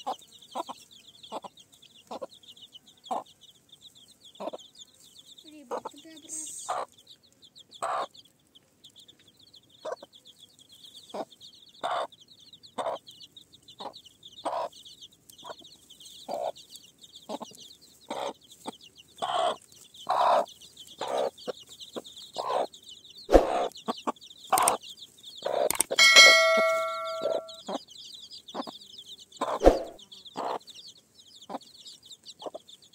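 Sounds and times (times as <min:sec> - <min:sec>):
chickens clucking: 0:00.0 - 0:27.8, 0:28.5 - 0:30.7, 0:31.4 - 0:32.7
metal struck and ringing: 0:26.0 - 0:27.6
steady high chirring: 0:26.0 - 0:27.6.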